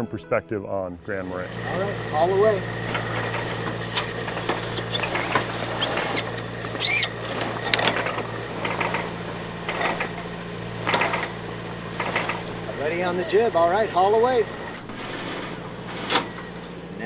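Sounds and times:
boat engine running: 0.8s - 17.0s
rigging knocking and creaking: 1.7s - 16.9s
brief squeak: 4.6s - 7.2s.

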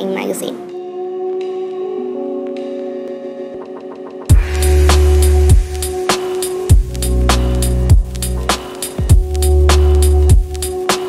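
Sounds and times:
deep kick drums: 4.3s - 6.0s, 6.7s - 8.4s, 9.0s - 10.7s
held bass note: 4.3s - 6.0s.

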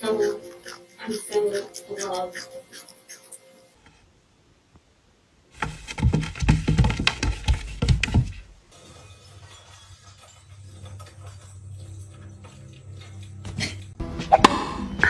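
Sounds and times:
cat knocking on wooden shelf: 5.6s - 8.4s.

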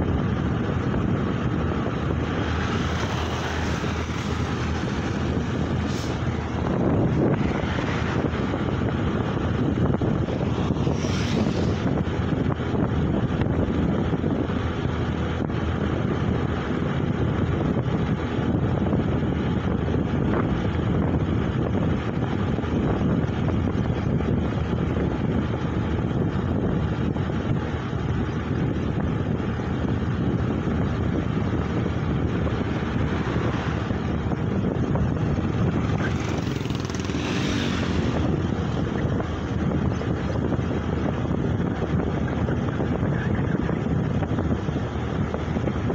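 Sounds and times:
low rumble from riding: 0.0s - 45.9s
motorbike road noise: 0.0s - 45.9s
wind buffeting microphone: 0.0s - 45.9s.

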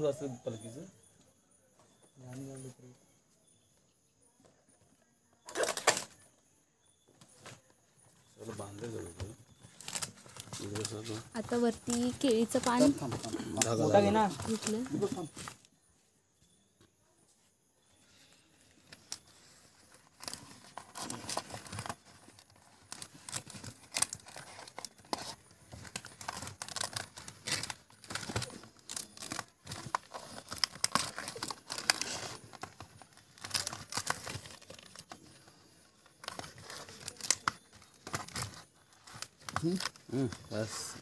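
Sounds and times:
banana leaves crinkling and rustling: 7.2s - 16.0s, 18.6s - 41.0s.

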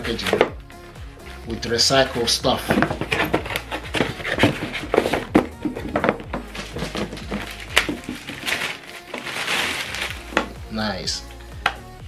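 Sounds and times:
knocks and taps of packaging: 2.7s - 9.4s
plastic bag crinkling: 2.7s - 10.6s.

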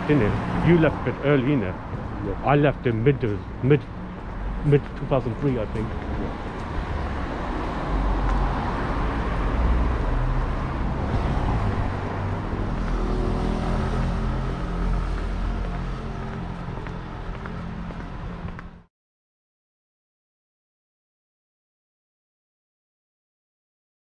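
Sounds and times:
cars passing: 0.0s - 18.9s.

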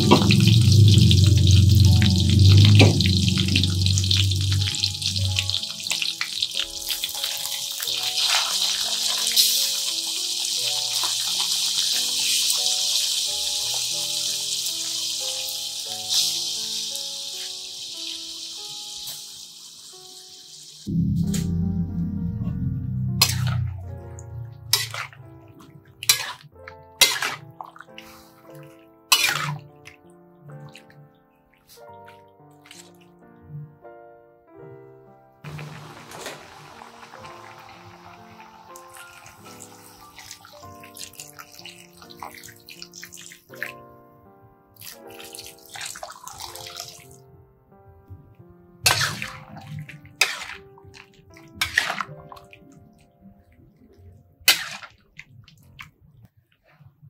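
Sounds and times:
water pouring into a pan: 0.0s - 20.9s, 35.4s - 43.7s, 44.8s - 47.2s, 48.9s - 50.7s, 51.3s - 52.5s
background music: 0.0s - 55.3s
metal spatula stirring in wok: 24.7s - 25.2s, 26.0s - 26.4s, 27.0s - 27.4s, 29.1s - 29.6s, 48.9s - 49.4s, 50.2s - 50.6s, 51.6s - 52.1s.

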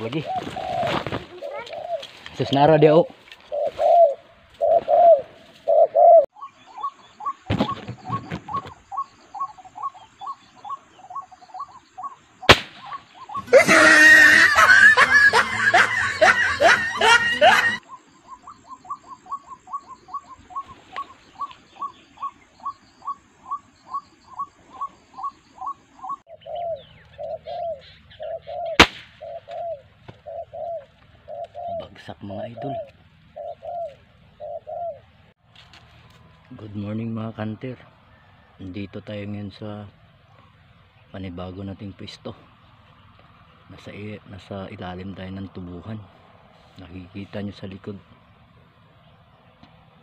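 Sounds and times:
doves cooing: 0.0s - 35.2s
sharp cracks: 12.5s - 13.0s, 28.8s - 29.2s.

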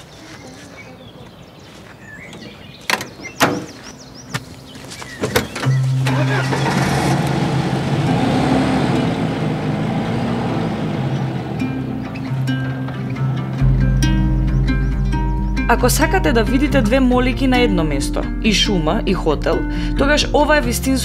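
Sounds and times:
car engine running: 5.1s - 18.8s.

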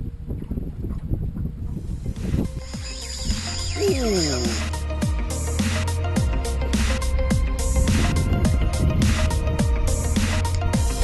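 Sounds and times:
wind rumbling on microphone: 0.0s - 4.5s, 7.0s - 11.0s
music: 1.9s - 11.0s.

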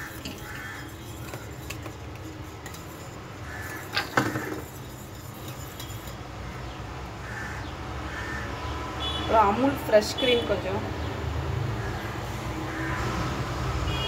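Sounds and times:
whisk clinking in a saucepan: 0.0s - 6.3s.

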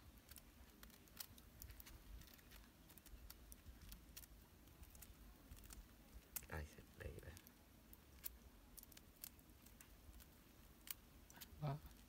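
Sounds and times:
egg shell cracking and peeling: 0.0s - 12.0s.

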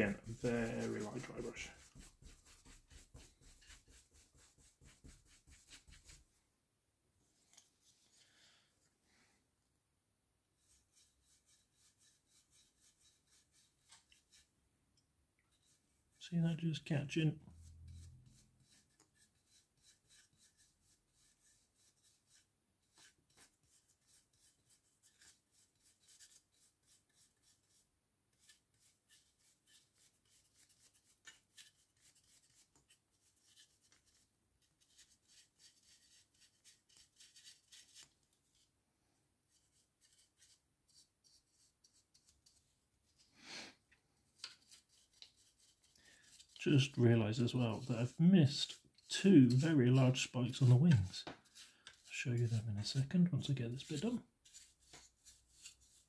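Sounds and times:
dry brush bristles scratching: 0.0s - 6.3s, 10.6s - 14.5s, 17.5s - 38.6s, 39.5s - 43.3s, 44.3s - 56.0s.

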